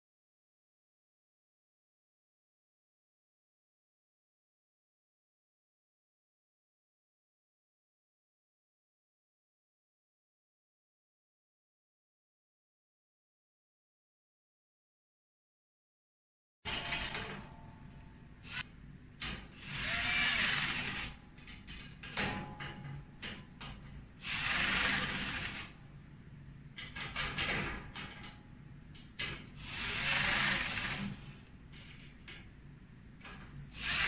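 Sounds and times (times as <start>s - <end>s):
electric screwdriver driving screws: 18.4s - 18.6s, 19.6s - 21.2s, 24.2s - 25.7s, 29.6s - 31.3s, 33.8s - 34.0s.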